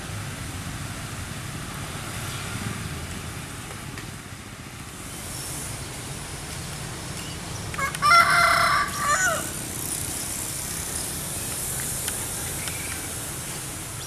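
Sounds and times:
rooster crowing: 7.8 - 9.6.

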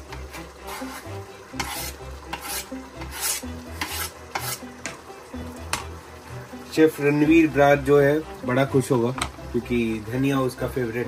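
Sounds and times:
spoon scraping cutting board: 0.1 - 5.0.

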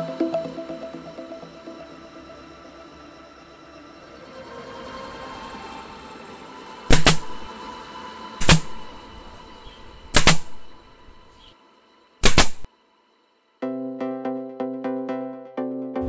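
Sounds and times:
staple gun firing: 6.9 - 7.5, 8.4 - 8.9, 10.2 - 10.7, 12.2 - 12.7.

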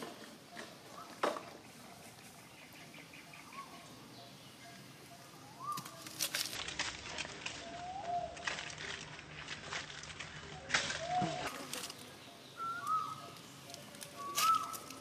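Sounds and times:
scuffs and taps on dry leaves: 5.6 - 12.1, 13.7 - 15.0
faint short chirping calls: 12.3 - 15.0.

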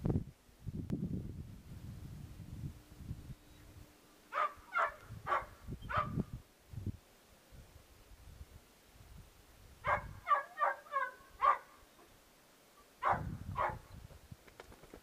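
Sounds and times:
dog barking: 4.3 - 6.2, 9.8 - 11.8, 13.0 - 13.9.

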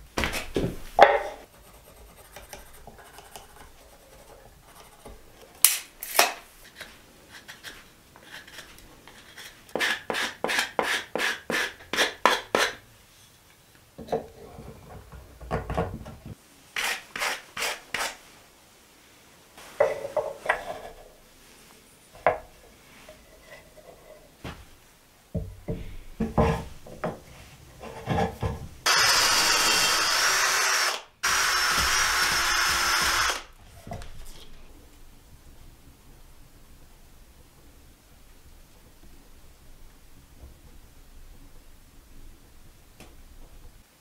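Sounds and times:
electric drill boring into wood: 28.9 - 33.5.

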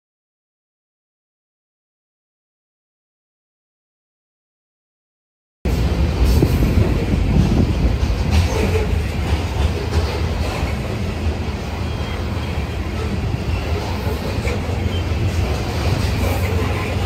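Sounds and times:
freight train rumbling past: 5.7 - 17.0
wheels clattering on rails: 5.7 - 17.0.

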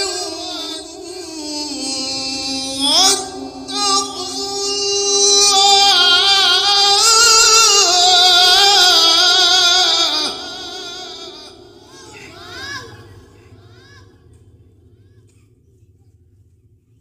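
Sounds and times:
man chanting a long melodic note: 0.0 - 14.4
amplified echo: 0.0 - 16.2.

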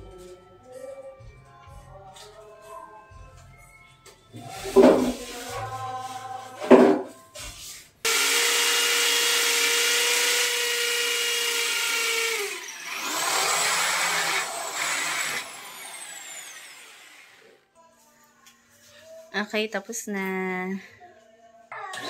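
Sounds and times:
power drill drilling into tile: 8.1 - 17.6.

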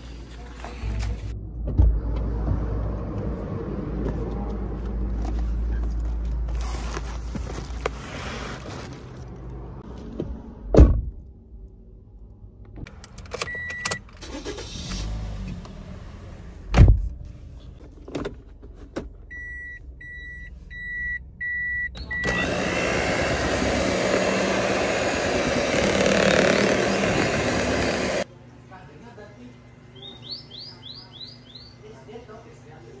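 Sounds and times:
dashboard warning chime beeping: 19.3 - 22.5
electric hand mixer running: 22.2 - 28.2.

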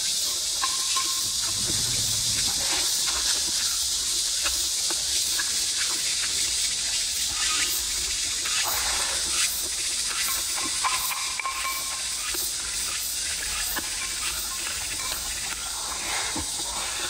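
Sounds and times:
steady high hiss: 0.0 - 17.0.

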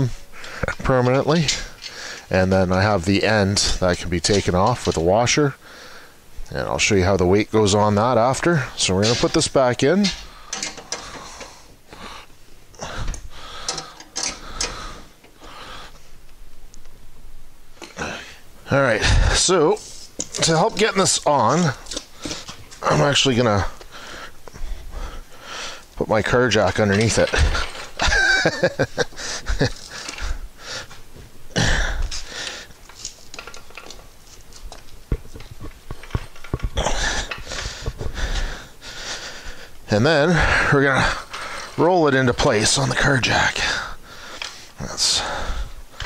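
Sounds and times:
light metallic clicks and knocks: 10.0 - 11.3.

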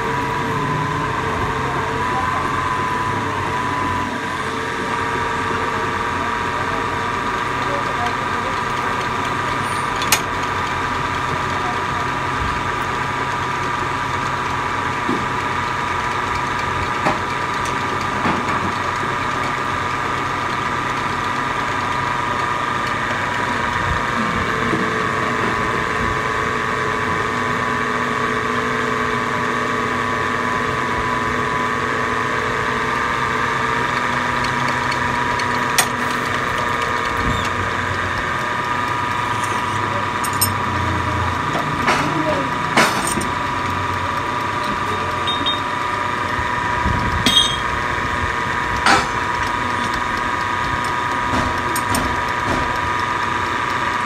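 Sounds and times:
metal lathe whining: 0.0 - 54.0
sharp metallic clicks: 33.9 - 44.6.

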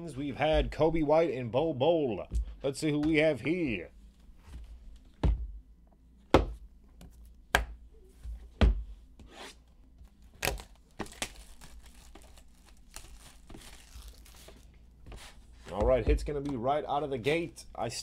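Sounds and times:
cellophane crinkling: 10.2 - 14.8.

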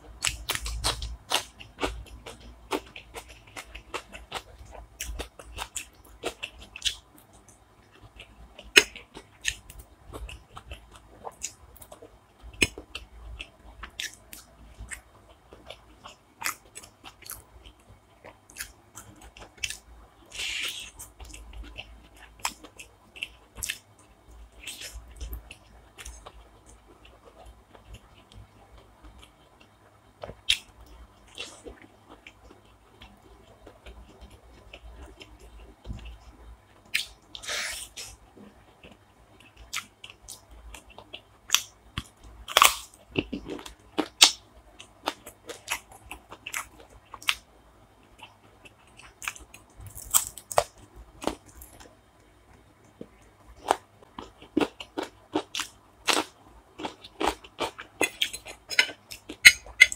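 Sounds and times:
person chewing and biting food: 0.2 - 23.8, 36.9 - 47.4, 48.2 - 51.9, 52.9 - 59.9.

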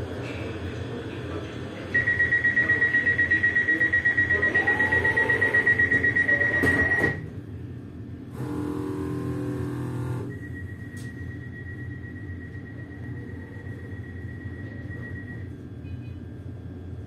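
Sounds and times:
train door warning beeper: 2.0 - 7.3, 8.4 - 16.2.

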